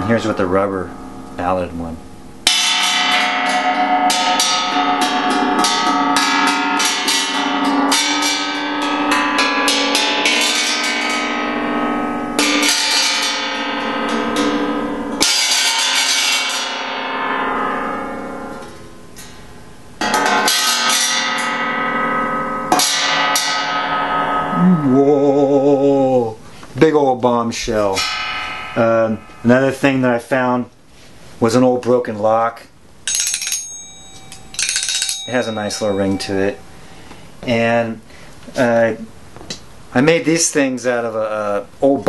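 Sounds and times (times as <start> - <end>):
mallet striking metal shell casing: 27.7 - 29.9, 33.0 - 36.7.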